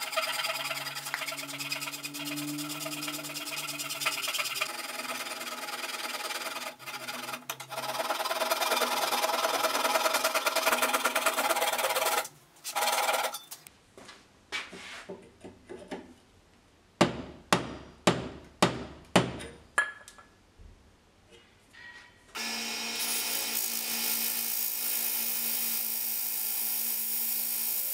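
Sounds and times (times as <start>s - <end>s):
hand saw rasping through wood: 0.0s - 13.4s.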